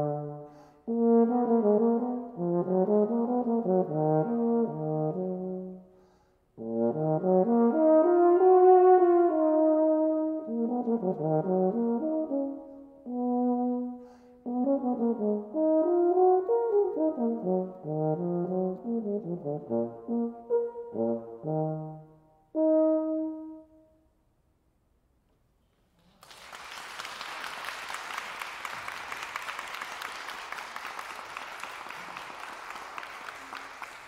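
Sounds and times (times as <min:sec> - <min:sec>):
baritone horn melody: 0:00.0 - 0:05.9, 0:06.6 - 0:24.0
audience applauding: 0:26.0 - 0:34.0.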